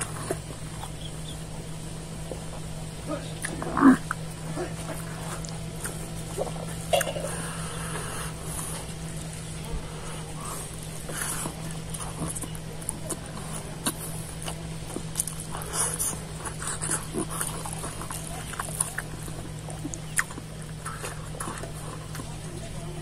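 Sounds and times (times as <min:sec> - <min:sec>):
chewing and lip-smacking: 0:00.0 - 0:01.5, 0:02.1 - 0:23.0
steady low hum: 0:00.0 - 0:23.0.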